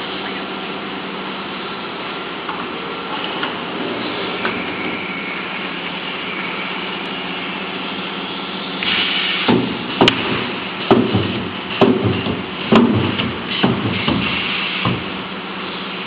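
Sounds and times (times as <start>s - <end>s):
welding machine humming: 0.8s - 16.0s
short loud hiss: 8.8s - 9.6s, 13.5s - 14.9s
sharp knock: 9.5s - 15.1s.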